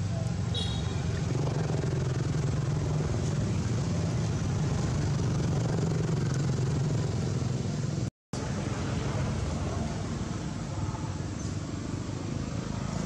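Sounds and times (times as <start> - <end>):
steady low rumble: 1.0 - 11.2.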